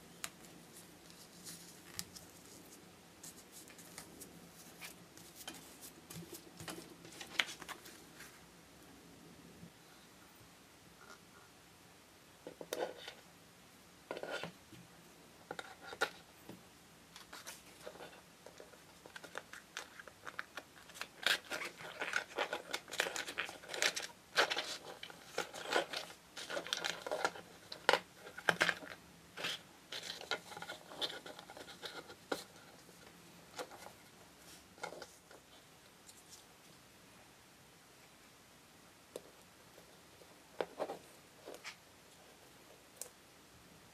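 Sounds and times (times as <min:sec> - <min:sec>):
hands clicking and scraping: 0:17.2 - 0:34.0.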